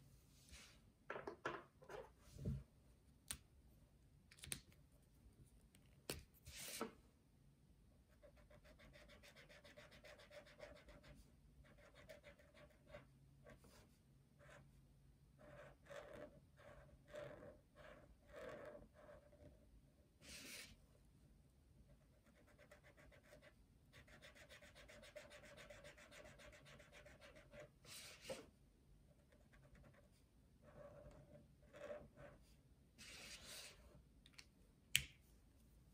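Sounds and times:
marker scratching on paper: 8.2s - 14.6s, 15.4s - 19.6s, 22.1s - 28.5s, 29.2s - 33.8s.

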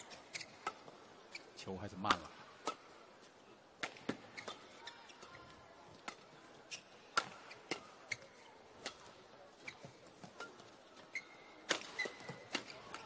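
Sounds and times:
rackets striking shuttlecock: 3.8s - 4.6s, 7.1s - 8.2s, 8.8s - 9.2s, 11.6s - 13.0s.

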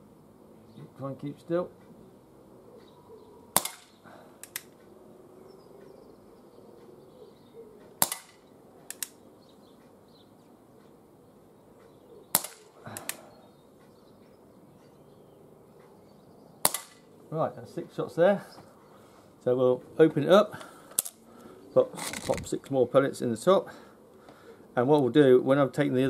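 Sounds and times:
pellet revolver shots: 3.5s - 4.6s, 8.0s - 9.1s, 12.3s - 13.2s, 16.6s - 17.1s
revolver hammer cocking clicks: 8.0s - 9.2s.

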